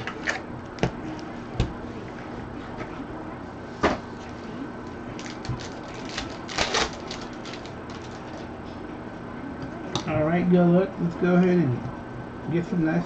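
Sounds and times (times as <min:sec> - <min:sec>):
card packs rustling: 0:05.2 - 0:08.4.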